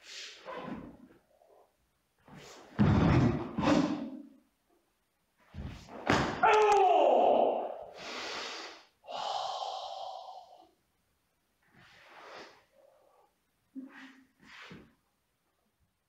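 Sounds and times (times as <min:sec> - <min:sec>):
person shouting: 0:06.4 - 0:07.9
forceful hissing breaths: 0:07.9 - 0:10.8.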